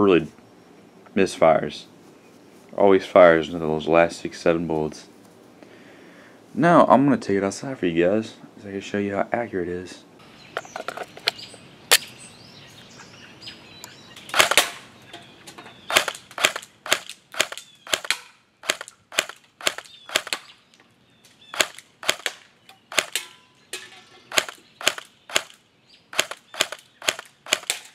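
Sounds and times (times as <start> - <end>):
airsoft rifle shots snapping: 14.3 - 14.9, 15.9 - 20.5, 21.5 - 23.4, 24.3 - 27.9.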